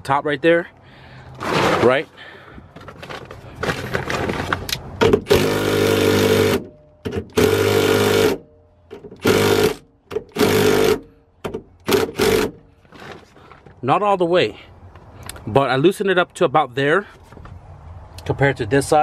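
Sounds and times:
impact wrench hammering: 5.0 - 12.6.

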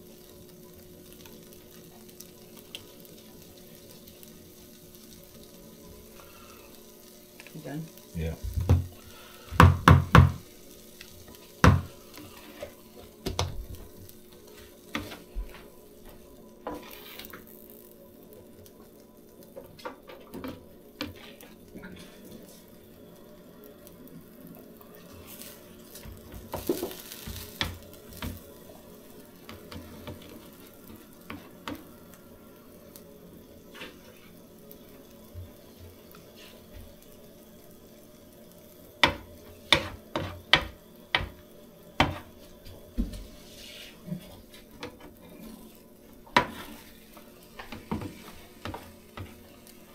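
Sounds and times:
food sizzling on griddle: 0.0 - 49.9
metal utensil scraping griddle: 11.3 - 13.1, 16.6 - 17.6, 20.0 - 22.6, 25.0 - 32.0, 33.6 - 34.4, 36.1 - 36.7, 39.0 - 41.3, 43.2 - 49.9.

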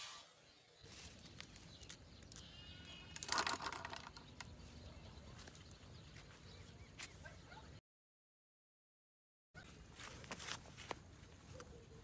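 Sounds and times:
plastic basket clattering: 3.2 - 4.3.

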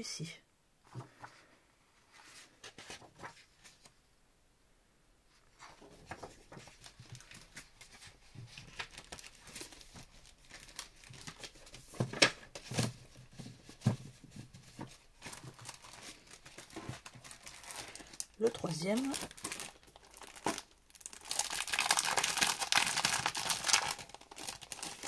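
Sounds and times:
paper sheets rustling: 0.9 - 4.0, 5.5 - 20.7
plastic packaging crinkling: 6.0 - 13.3, 14.6 - 25.0.

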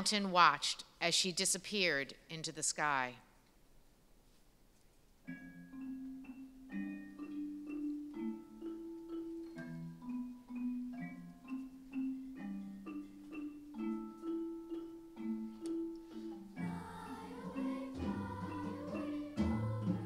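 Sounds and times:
xylophones playing slow melody: 5.3 - 20.0.

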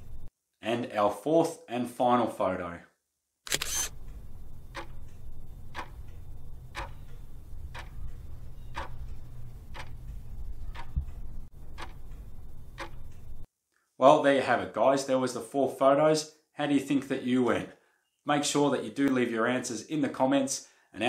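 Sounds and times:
steady low hum: 3.6 - 13.5
clock ticking: 4.0 - 13.5.

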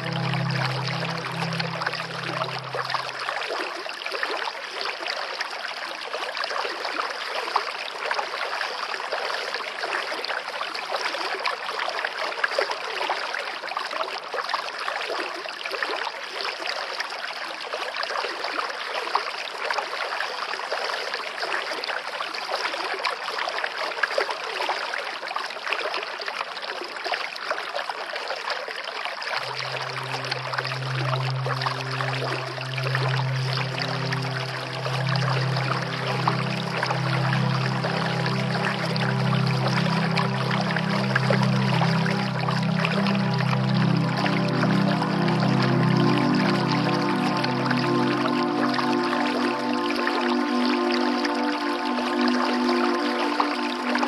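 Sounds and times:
low music tone: 0.0 - 3.7, 29.4 - 54.0
running water rushing: 0.0 - 11.8, 29.4 - 54.0.

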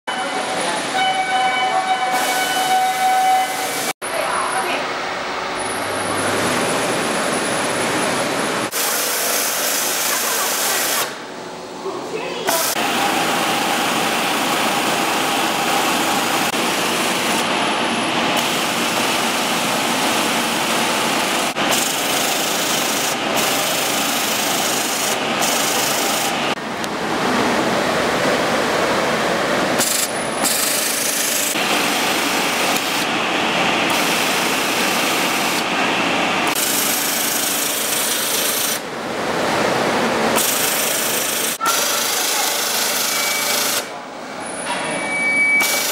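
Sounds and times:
sewing machine running fast: 18.3 - 26.6, 29.8 - 33.1, 36.5 - 38.8, 40.4 - 43.9, 45.6 - 45.9.

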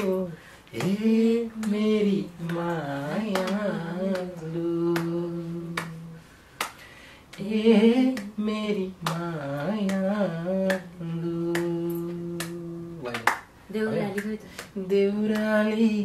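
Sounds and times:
person singing a held melody: 0.0 - 6.2, 7.3 - 16.0.

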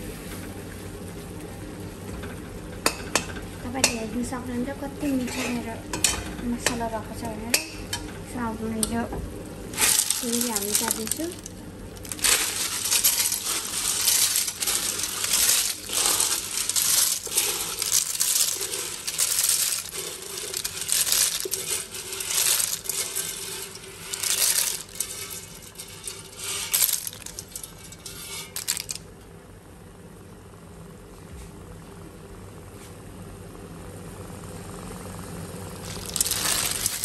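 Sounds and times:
snail shells rattling in a metal wok: 9.7 - 29.1, 35.8 - 37.0.

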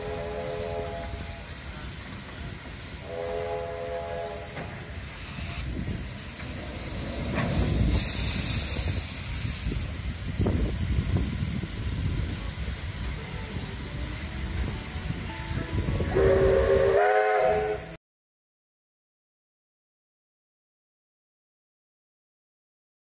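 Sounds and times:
steam whistle blast: 0.0 - 1.5, 3.0 - 5.6, 15.5 - 18.0
locomotive low rumble: 0.0 - 18.0
steam hissing: 0.0 - 18.0.

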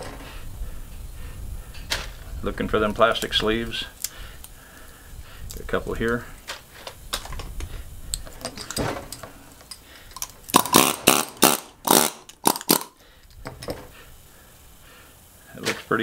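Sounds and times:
pneumatic air chisel hammering: 8.4 - 14.0.

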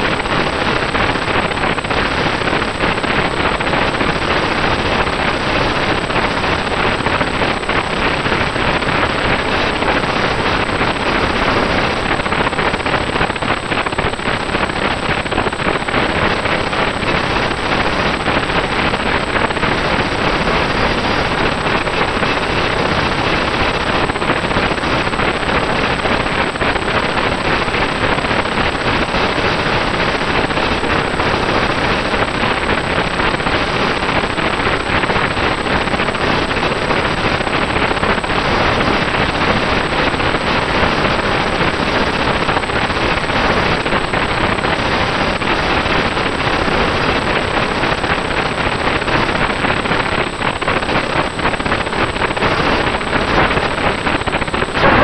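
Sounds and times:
harsh camera noise: 0.0 - 55.0
thin high whine: 52.1 - 55.0.

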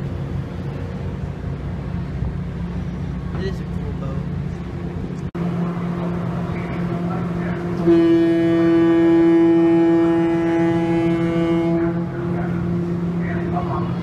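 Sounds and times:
ship engines droning: 0.0 - 14.0
ferry horn blast: 7.7 - 12.5.

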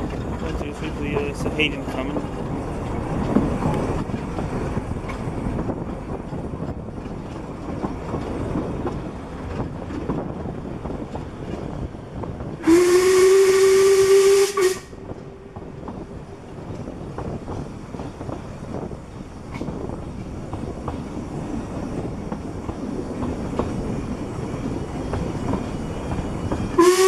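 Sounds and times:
train running on rails: 0.0 - 27.0
steam locomotive whistle: 12.6 - 15.0, 26.7 - 27.0.

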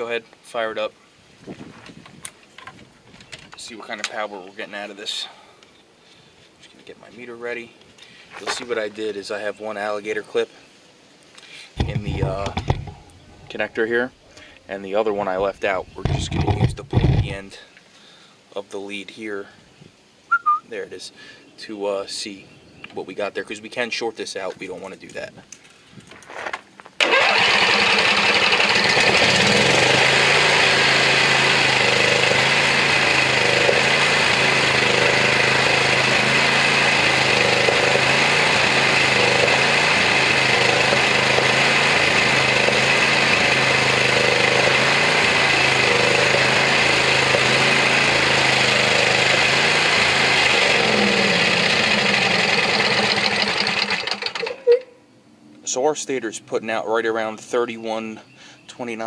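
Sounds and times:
mower engine running: 11.8 - 13.4, 16.0 - 17.4, 27.0 - 54.8.

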